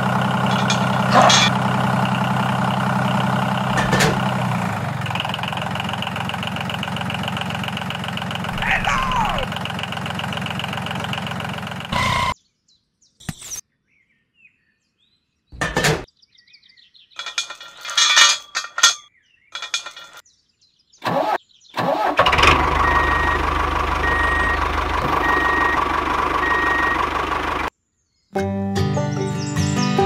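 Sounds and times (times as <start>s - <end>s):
engine idling: 0.0s - 12.4s, 22.2s - 27.7s.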